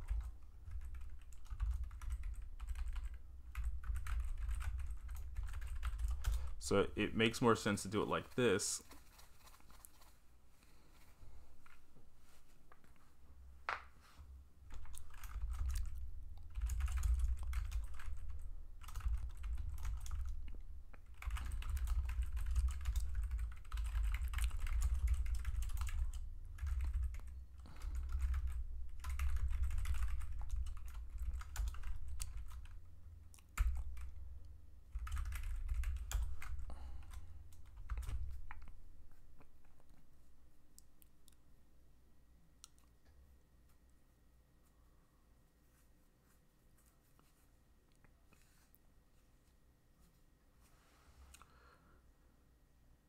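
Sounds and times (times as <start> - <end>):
computer keyboard typing: 0.0 - 6.6, 14.7 - 32.8, 33.4 - 34.2, 34.9 - 38.7.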